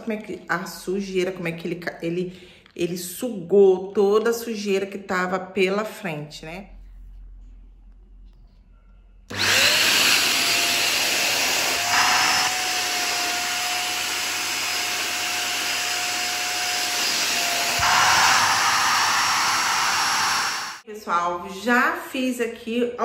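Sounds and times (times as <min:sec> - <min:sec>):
vacuum cleaner motor whine: 0:09.3 - 0:20.8.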